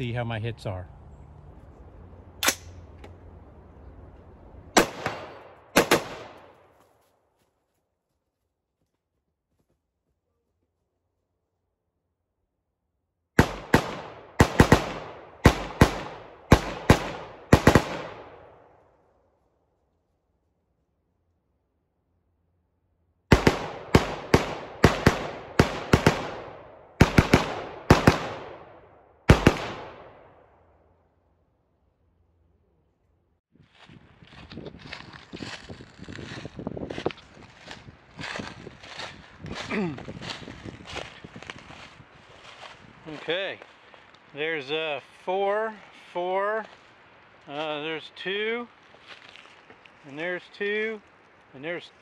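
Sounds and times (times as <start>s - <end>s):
rifle shots echoing: 4.8s - 6.7s, 13.4s - 18.7s, 23.3s - 30.5s.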